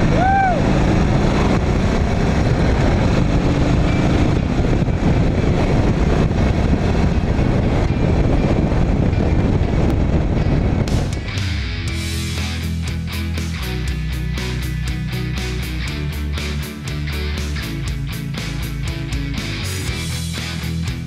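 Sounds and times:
motorcycle engine running: 0.0 - 21.0
rock music: 0.0 - 21.0
wind rush: 0.0 - 21.0.

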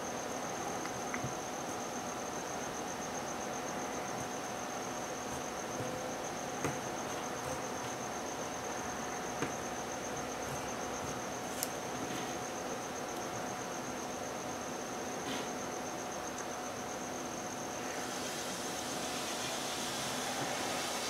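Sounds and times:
high-pitched insect trill: 0.0 - 21.0
even hiss: 17.7 - 21.0.

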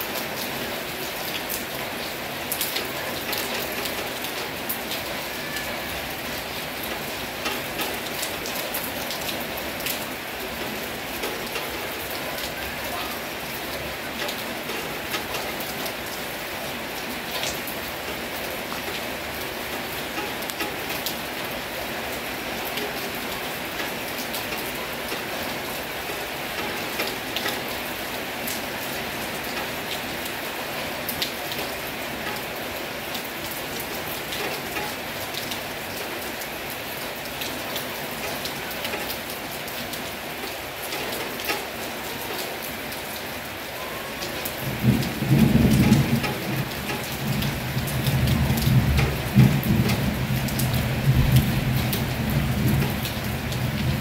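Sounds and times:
heavy rain falling: 0.0 - 54.0
raindrops ticking on a surface: 0.0 - 54.0
low rumble of thunder: 44.6 - 54.0.

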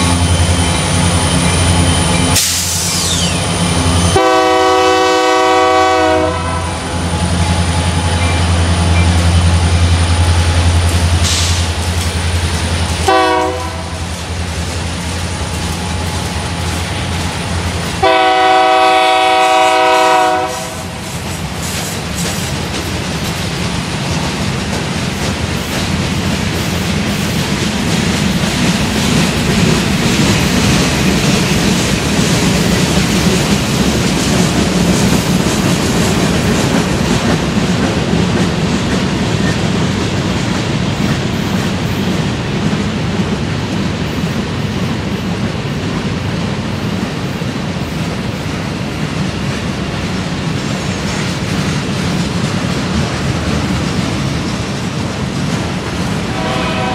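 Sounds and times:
diesel locomotive drone: 0.0 - 56.9
train wheels clacking on rails: 0.0 - 56.9
train horn blasts: 4.1 - 7.0, 13.0 - 14.1, 18.0 - 21.0, 56.3 - 56.9.

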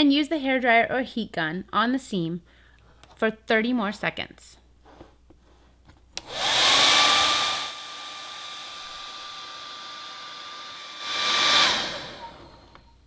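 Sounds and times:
hair dryer blowing air: 6.2 - 12.9.

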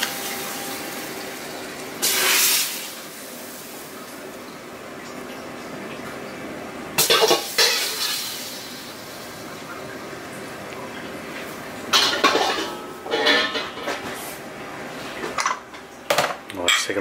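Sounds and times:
metal spoon clattering on dishes: 12.0 - 14.1.

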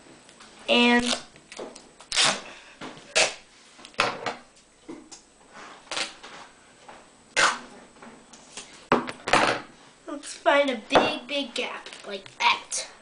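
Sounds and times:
tape ripping off roll: 2.1 - 2.4, 5.9 - 6.3.

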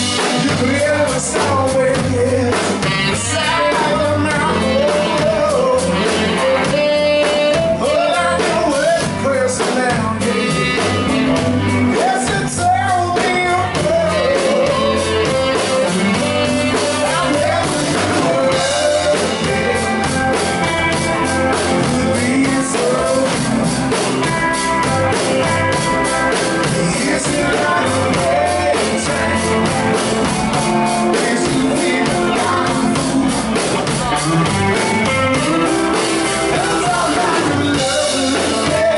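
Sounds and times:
man singing: 0.0 - 24.6, 25.4 - 38.9
drum kit: 0.0 - 38.9
electric guitar: 0.0 - 38.9.

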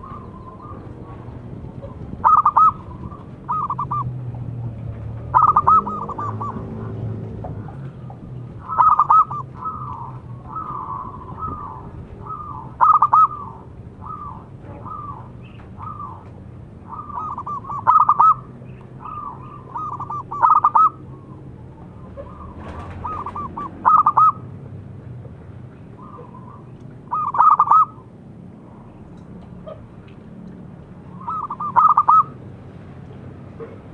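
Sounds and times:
dove cooing: 0.0 - 4.2, 5.3 - 7.8, 8.5 - 24.4, 26.0 - 28.1, 31.1 - 32.4.

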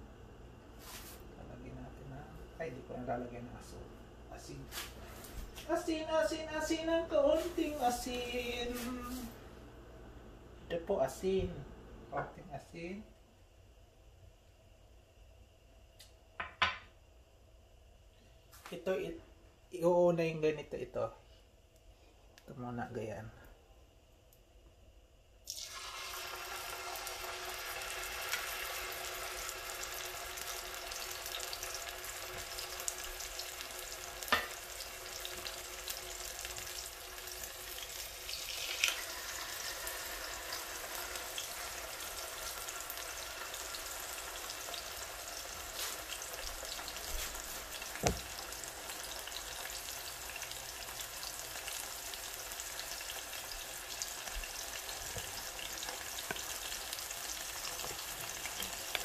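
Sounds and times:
fish sizzling in hot oil: 25.4 - 59.0.

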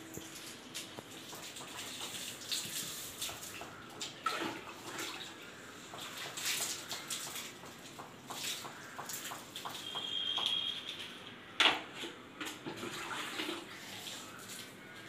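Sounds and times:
water pouring over hair: 0.0 - 11.2, 12.6 - 15.0
water splashing on wet floor: 0.0 - 11.2.

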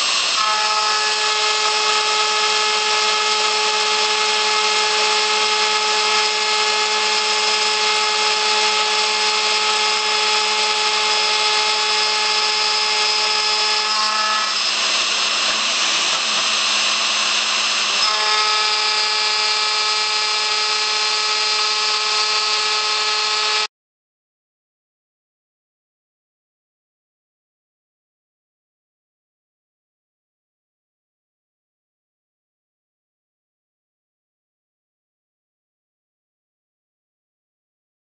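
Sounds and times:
end mill cutting steel: 0.0 - 23.7
router spindle whine: 0.0 - 23.7.

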